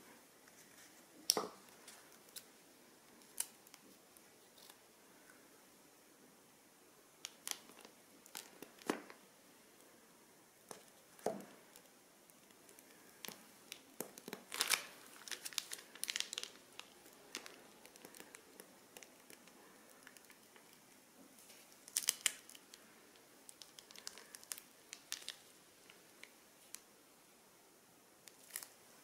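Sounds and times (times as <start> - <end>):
plastic bags crinkling and tearing: 3.2 - 3.9, 7.2 - 9.2, 10.7 - 20.9, 21.5 - 22.9, 23.5 - 26.8, 28.3 - 28.8.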